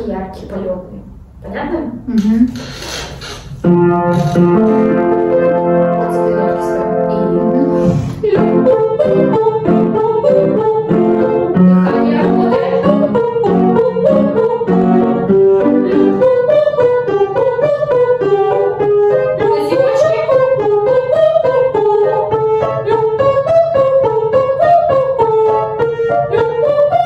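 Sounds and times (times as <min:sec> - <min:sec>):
piano playing quick notes: 0:03.6 - 0:27.0
woman singing vocal exercise: 0:07.8 - 0:09.7, 0:15.7 - 0:16.6, 0:22.8 - 0:23.4.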